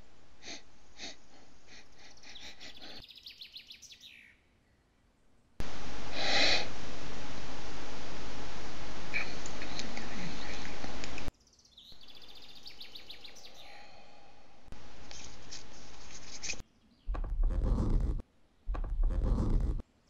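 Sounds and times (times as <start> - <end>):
birds chirping: 1.8 - 4.8, 9.1 - 14.2
loud steady noise: 5.6 - 11.3.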